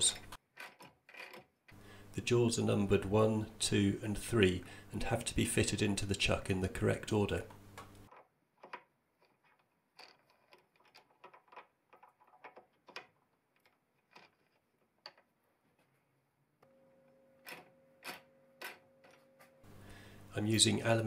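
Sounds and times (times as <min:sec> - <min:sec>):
faint steady hum: 0:01.7 - 0:08.3, 0:15.7 - 0:21.0.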